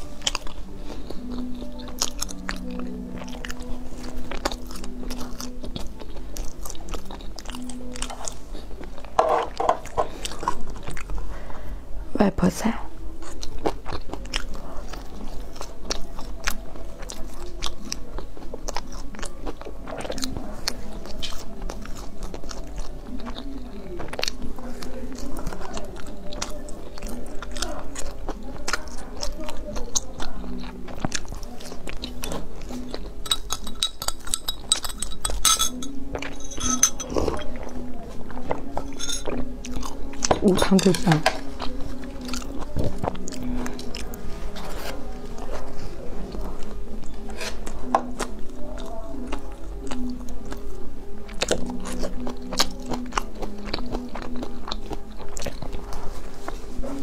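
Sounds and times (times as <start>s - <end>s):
chewing mouth sounds: 0.0s - 11.3s, 13.0s - 57.0s
chopsticks clinking on glass: 33.2s - 37.6s, 38.7s - 39.5s.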